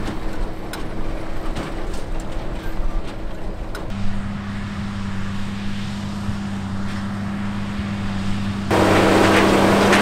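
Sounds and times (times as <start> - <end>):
tractor engine drone: 0.0 - 10.0.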